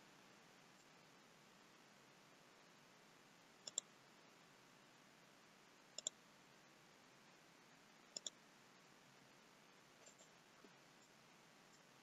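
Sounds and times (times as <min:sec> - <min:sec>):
faint steady hiss: 0:00.0 - 0:12.0
computer mouse click: 0:03.6 - 0:03.9, 0:06.0 - 0:06.2, 0:08.1 - 0:08.4.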